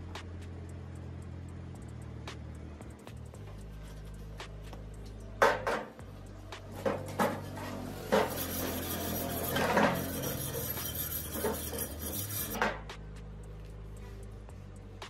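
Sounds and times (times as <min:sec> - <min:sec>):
metal scraping and rubbing: 0:06.6 - 0:12.9.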